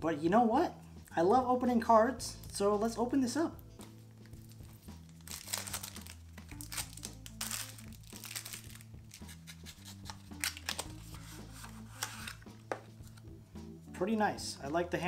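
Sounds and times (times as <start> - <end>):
jazz music: 1.7 - 15.0
cellophane wrapper crinkling and tearing: 4.3 - 11.2.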